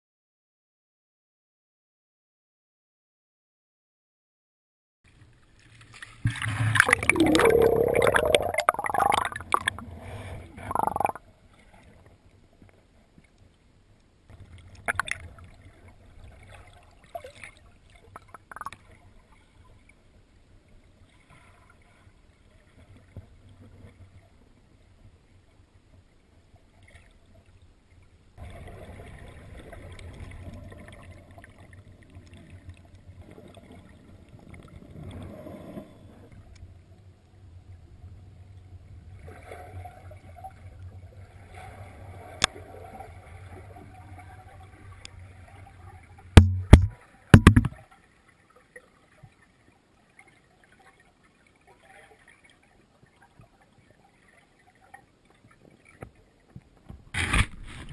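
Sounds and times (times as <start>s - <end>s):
water splashing and sloshing: 5.1s - 13.7s, 14.3s - 25.3s, 25.9s - 37.0s, 38.8s - 57.9s
low rush of water: 5.1s - 50.1s
underwater knocks and gurgles: 5.6s - 12.0s, 14.3s - 19.0s, 39.0s - 48.0s
muffled underwater sound: 6.8s - 11.2s, 35.4s - 47.8s.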